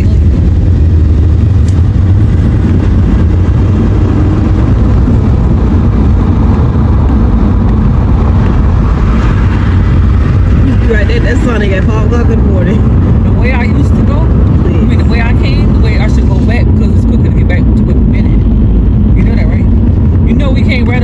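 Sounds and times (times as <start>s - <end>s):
car driving cabin rumble: 0.0s - 21.0s.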